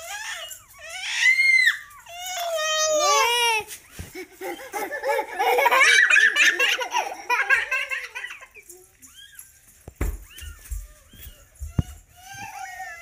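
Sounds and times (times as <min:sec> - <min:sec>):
high falling cries: 0:00.0 - 0:03.6
children laughing: 0:02.6 - 0:09.0.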